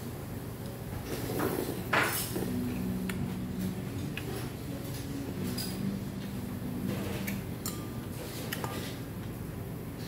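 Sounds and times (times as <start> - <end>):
low hum: 2.4 - 8.2.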